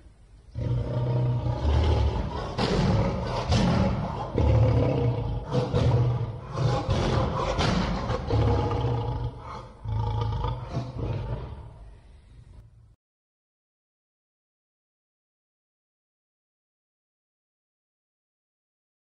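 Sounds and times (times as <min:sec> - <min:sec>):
lion roaring: 0:00.5 - 0:11.9.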